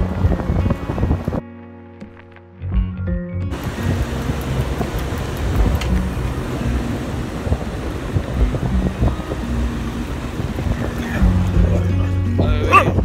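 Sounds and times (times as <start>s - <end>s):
car road noise: 0.0s - 1.4s, 3.5s - 13.0s
wind buffeting: 0.0s - 1.4s, 3.5s - 13.0s.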